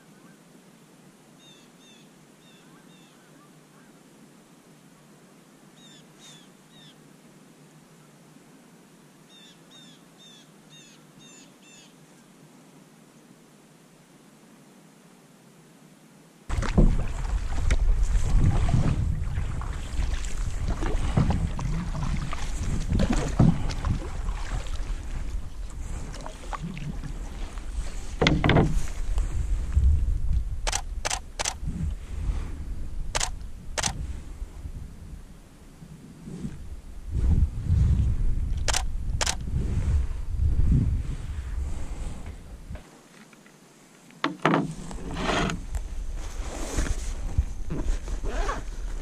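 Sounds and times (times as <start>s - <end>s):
faint steady hiss: 0.0s - 39.2s, 39.9s - 49.0s
wind on microphone: 16.5s - 42.9s, 44.6s - 49.0s
paddle in water: 16.5s - 49.0s.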